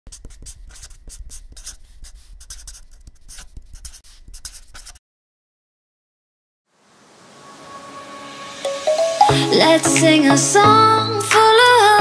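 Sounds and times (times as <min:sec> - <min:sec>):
pen scratching on paper: 0:00.1 - 0:05.0.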